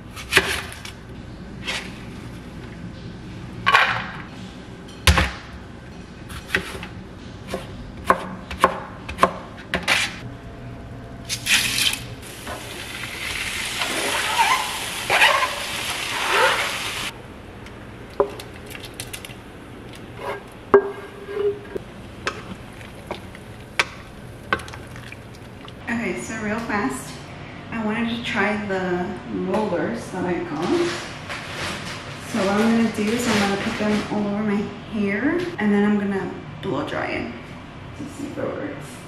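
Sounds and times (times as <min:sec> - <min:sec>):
knife and cookware clattering: 0:20.2 - 0:22.5
water running into pot: 0:22.6 - 0:25.8.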